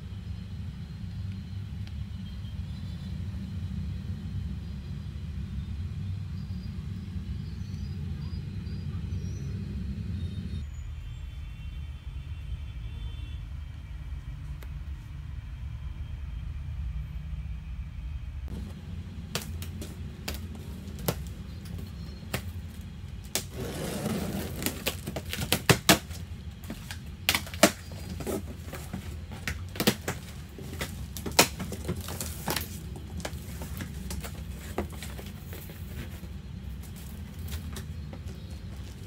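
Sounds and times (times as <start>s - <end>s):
steady low hum: 0.0s - 39.0s
cardboard tapped and rustled: 18.5s - 23.5s, 24.3s - 39.0s
packing straps clicking and snapping: 19.3s - 36.1s
scraping rustle: 19.4s - 39.0s.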